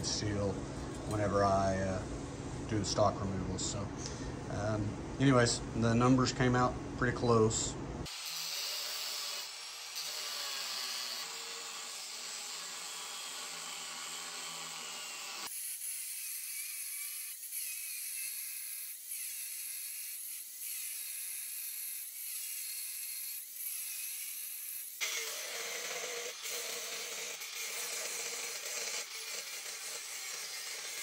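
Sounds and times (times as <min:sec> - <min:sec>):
angle grinder cutting steel: 0:08.1 - 0:31.0.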